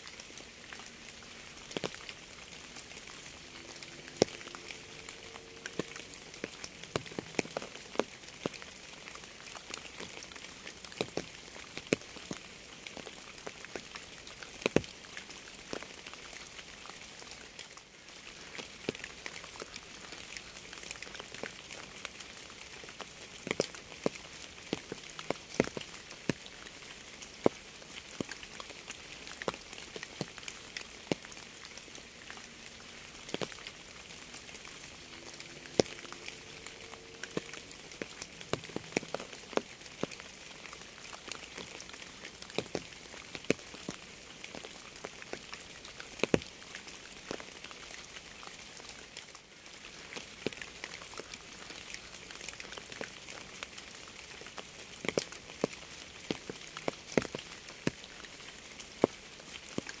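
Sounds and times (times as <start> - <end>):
raindrops ticking on hard surface: 0.0 - 60.0
steady rain hiss: 0.0 - 60.0.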